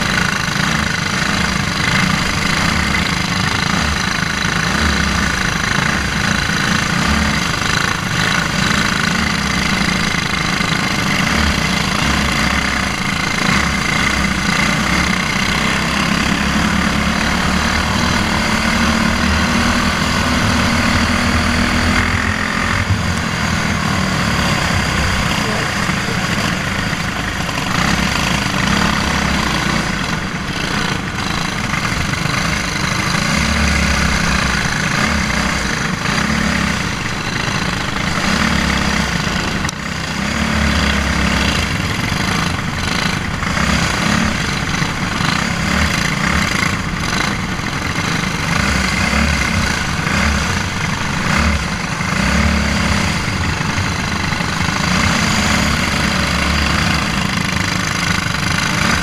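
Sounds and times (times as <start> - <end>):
kart engine running hard: 0.0 - 59.0
other kart engines: 0.0 - 59.0
rush of noise: 0.0 - 59.0.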